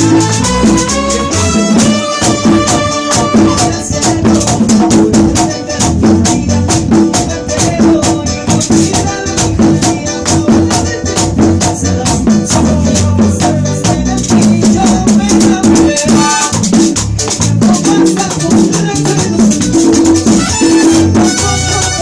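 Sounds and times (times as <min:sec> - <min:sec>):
trombones: 0:00.0 - 0:04.0, 0:20.3 - 0:22.0
drums: 0:00.0 - 0:22.0
keyboard: 0:00.0 - 0:22.0.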